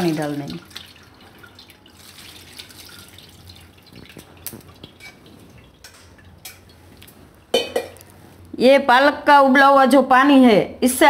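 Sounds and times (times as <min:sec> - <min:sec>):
water dripping and trickling: 0:00.0 - 0:08.1.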